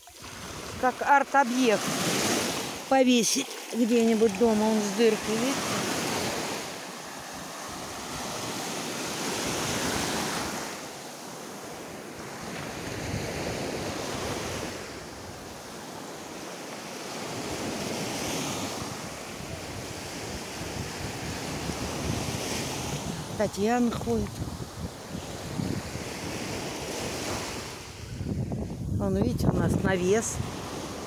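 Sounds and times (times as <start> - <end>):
surf washing onto shore: 0.0 - 31.0
wind buffeting microphone: 18.8 - 31.0.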